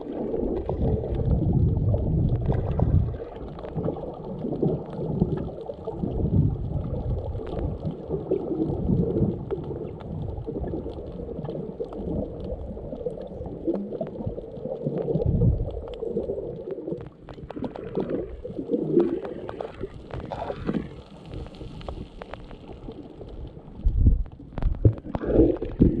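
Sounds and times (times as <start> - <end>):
underwater rumbling and gurgling: 0.0 - 26.0
faint clicks: 11.4 - 25.3.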